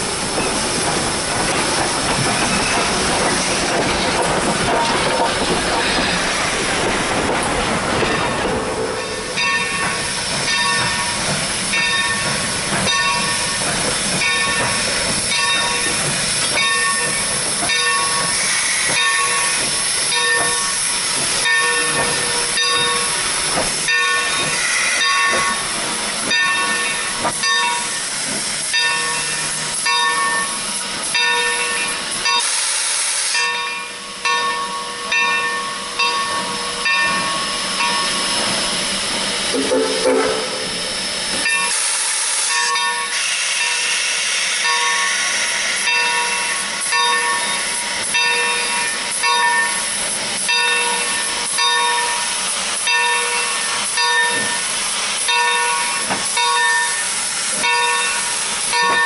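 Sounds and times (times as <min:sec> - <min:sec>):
steam hissing: 0:00.0 - 0:34.1, 0:36.4 - 0:59.0
locomotive bell ringing: 0:08.0 - 0:28.0, 0:28.7 - 0:32.5, 0:33.4 - 0:38.8, 0:39.5 - 0:41.8, 0:42.5 - 0:44.0, 0:44.6 - 0:59.0
sharp burst of steam: 0:17.3 - 0:21.4, 0:23.0 - 0:26.2, 0:32.3 - 0:33.6, 0:37.6 - 0:46.9.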